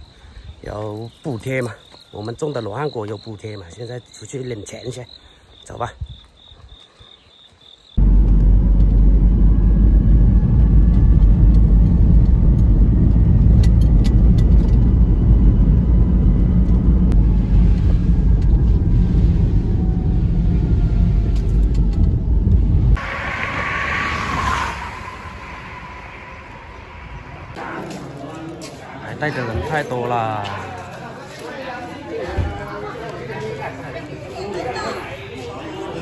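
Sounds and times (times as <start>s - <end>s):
car engine and road noise: 8.0s - 27.9s
hissy outdoor noise: 23.0s - 27.8s.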